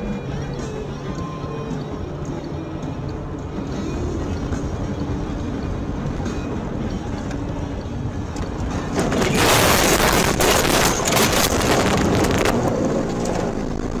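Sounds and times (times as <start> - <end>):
car road and engine rumble: 0.0 - 14.0
snow rushing and crackling: 9.0 - 14.0.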